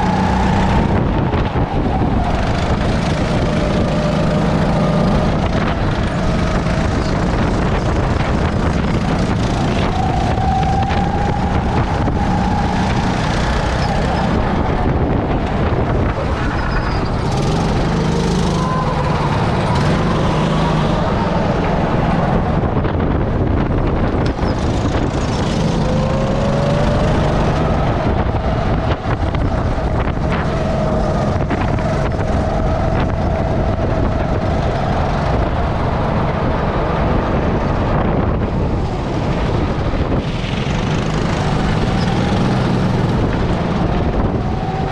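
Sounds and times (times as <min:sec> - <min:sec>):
go-kart engine running: 0:00.0 - 0:44.9
wind noise on microphone: 0:00.0 - 0:44.9.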